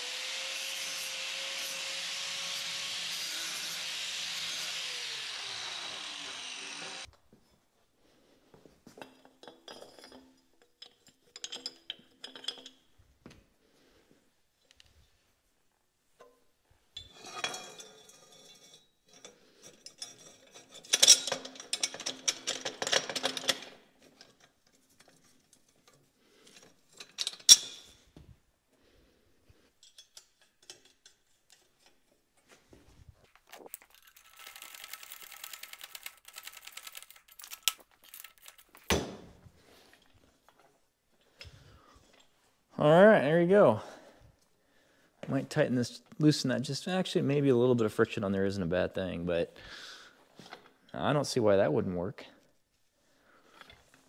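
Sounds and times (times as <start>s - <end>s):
steel tubing clanking and rattling: 9.0s - 12.8s, 17.0s - 27.9s.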